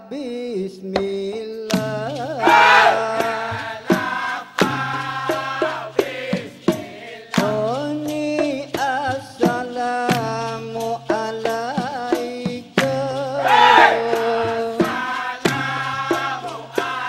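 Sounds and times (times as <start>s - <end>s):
man singing into microphone: 0.0s - 3.6s, 7.4s - 17.0s
sharp percussion strikes: 1.7s - 17.0s.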